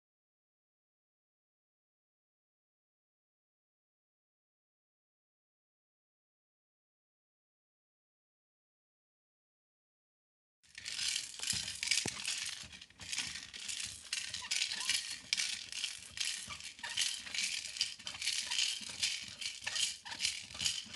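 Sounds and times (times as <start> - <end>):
hissy shaking rattle: 10.7 - 20.9.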